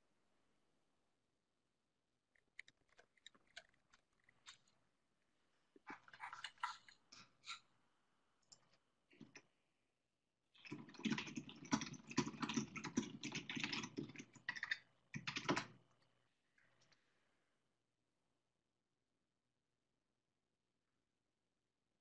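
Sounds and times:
typing on computer keyboard: 0:10.6 - 0:15.8.

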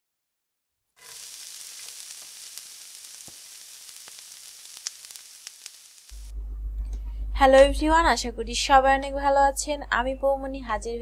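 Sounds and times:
crackles and pops of oil: 0:01.0 - 0:06.3
food sizzling in hot oil: 0:01.0 - 0:06.3.

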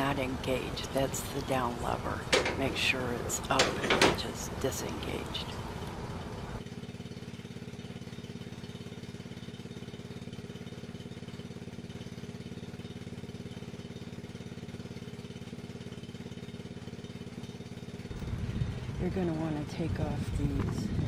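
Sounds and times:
small gas engine running: 0:05.8 - 0:21.0.

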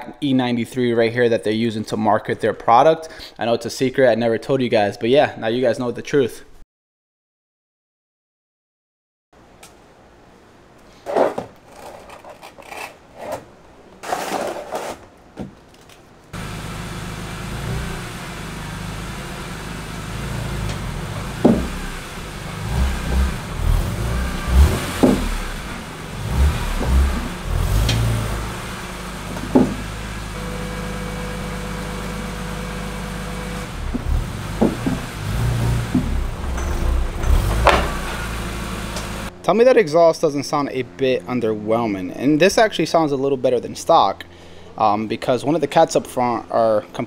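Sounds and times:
plastic ramps knocking down: 0:20.7 - 0:21.9, 0:24.5 - 0:25.6, 0:29.2 - 0:29.9, 0:33.9 - 0:38.3.

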